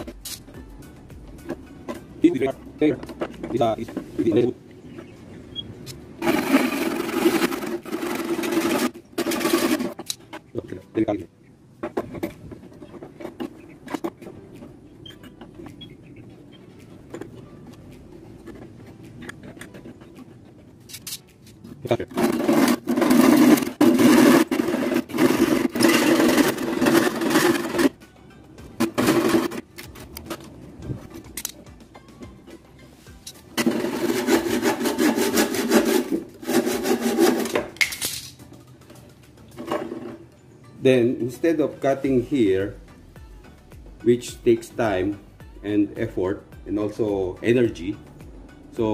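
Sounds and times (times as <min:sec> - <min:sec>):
handsaw cutting wooden board: 0:06.2 - 0:10.0, 0:22.1 - 0:27.9, 0:33.6 - 0:37.6.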